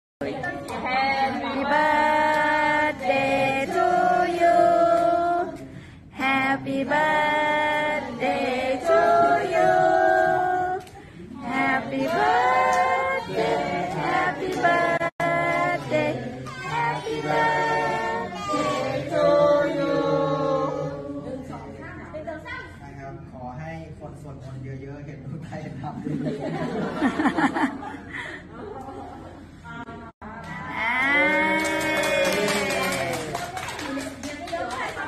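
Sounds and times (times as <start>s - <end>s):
group singing birthday song: 0.2s - 21.8s, 26.1s - 28.2s.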